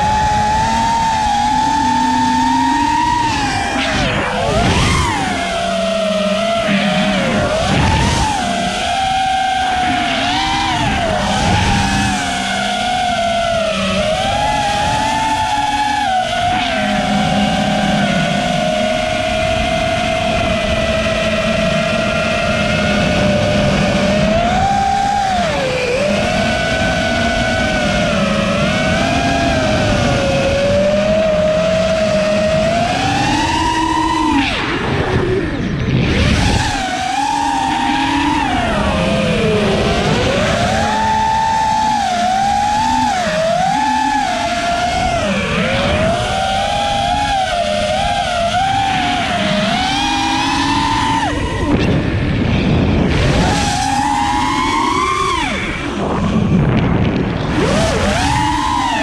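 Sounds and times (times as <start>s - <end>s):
drone motors whining: 0.0s - 59.0s
rush of noise: 0.0s - 59.0s.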